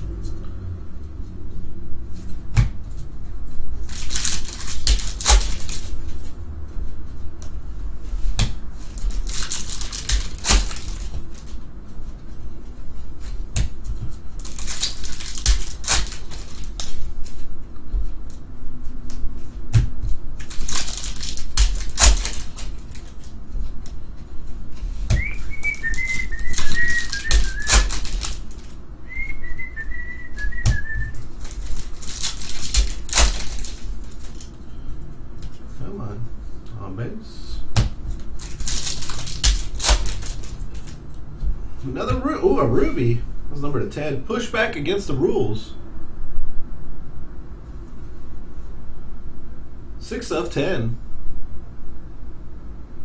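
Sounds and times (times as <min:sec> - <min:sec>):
card wrappers tearing and crackling: 0:03.8 - 0:06.0, 0:08.9 - 0:11.5, 0:14.4 - 0:17.0, 0:20.4 - 0:23.3, 0:25.3 - 0:28.8, 0:31.4 - 0:34.5, 0:38.4 - 0:41.0
wavering whistled phrases: 0:25.2 - 0:27.8, 0:29.1 - 0:31.2.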